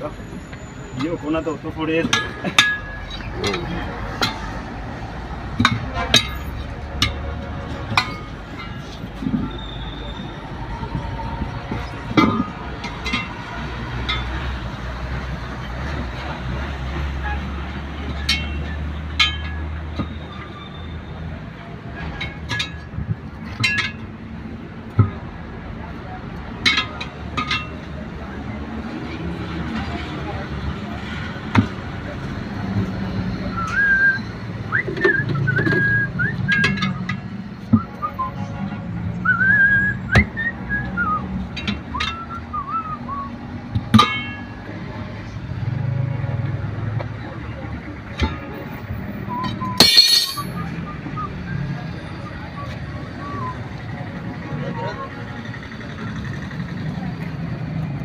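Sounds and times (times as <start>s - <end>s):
person whistling a tune: 33.5s - 37.1s, 37.7s - 38.6s, 39.2s - 41.3s, 41.9s - 43.4s, 50.6s - 53.7s
tyre lever clinking on wheel rim: 49.7s - 50.6s.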